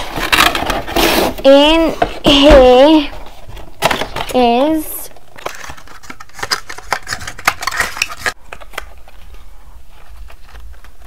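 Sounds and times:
cardboard rustling: 0.0s - 11.0s.

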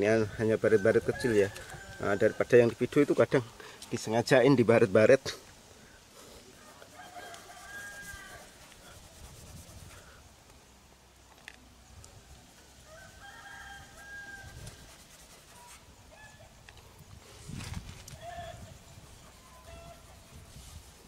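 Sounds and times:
faint rooster crowing: 0.6s - 3.1s, 6.5s - 8.8s, 12.8s - 16.6s, 18.1s - 20.4s.

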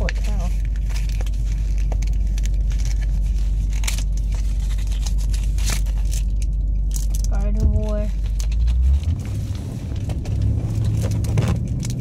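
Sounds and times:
car cabin low rumble: 0.0s - 12.0s
foil pack crinkling and tearing: 0.0s - 12.0s.

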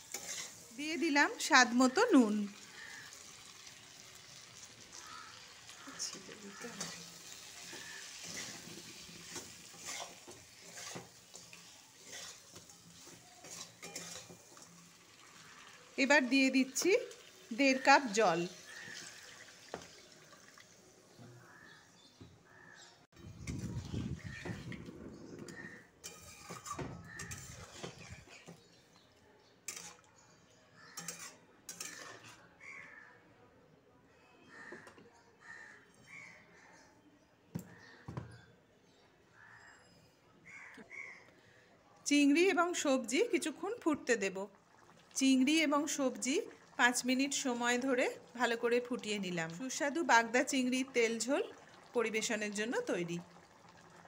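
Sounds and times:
spatula scraping a metal pan: 0.0s - 0.7s, 6.0s - 14.8s, 25.5s - 28.5s, 29.7s - 30.1s, 30.9s - 32.4s
frying sizzle: 0.0s - 21.6s, 23.2s - 28.3s, 42.1s - 54.0s
gravy sloshing: 44.5s - 45.2s, 51.0s - 54.0s.

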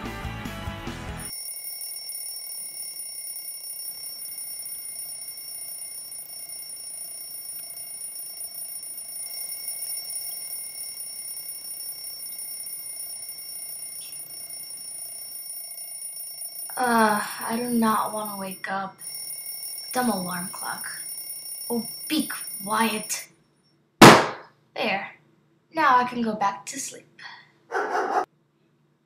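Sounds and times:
alarm clock ringing: 1.2s - 23.3s.

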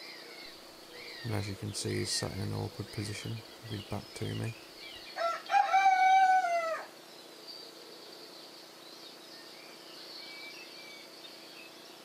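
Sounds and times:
steady high hiss: 0.0s - 5.5s
faint bird chirps: 0.0s - 12.0s
rooster crowing: 5.1s - 6.9s.

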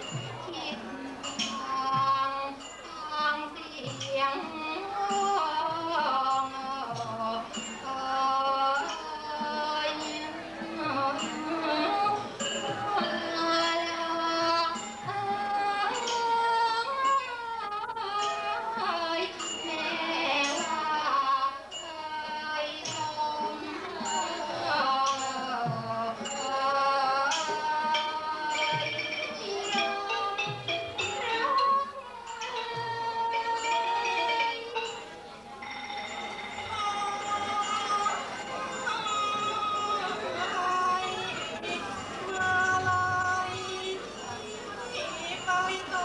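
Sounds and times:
metallic percussion strikes: 0.0s - 17.4s, 18.0s - 46.0s
traditional ensemble music: 0.0s - 46.0s.

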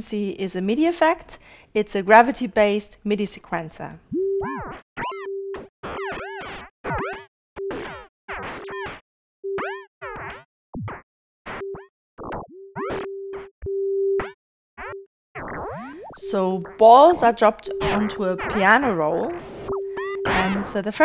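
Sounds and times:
short electronic synth tones: 4.1s - 9.9s, 11.5s - 20.8s
steady mid-pitched synth note: 16.2s - 20.8s.

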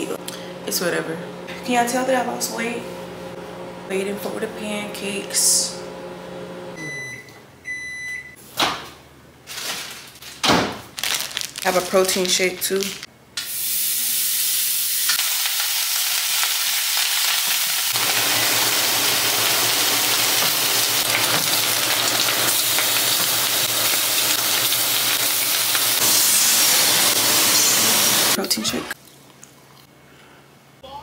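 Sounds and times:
meat sizzling in a pan: 13.5s - 28.4s.

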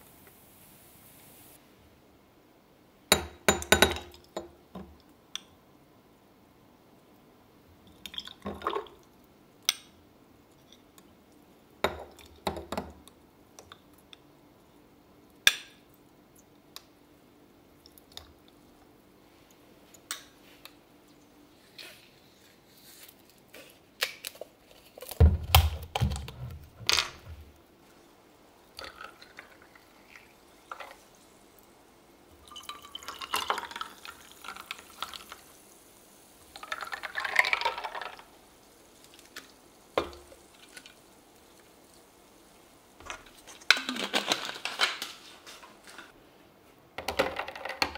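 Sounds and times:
sparkling water pouring over ice: 28.7s - 31.7s, 32.3s - 44.2s.

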